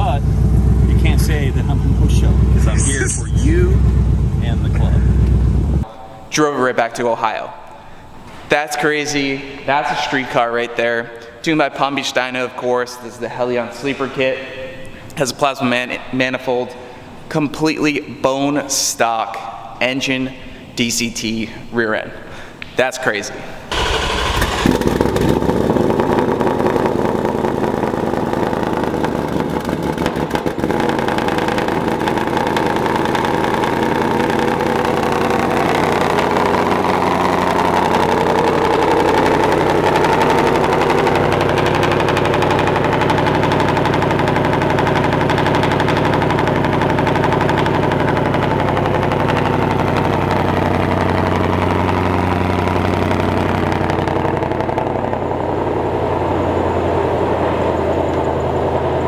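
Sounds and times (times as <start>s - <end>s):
car engine running at low revs: 0.0s - 5.9s, 23.7s - 59.0s.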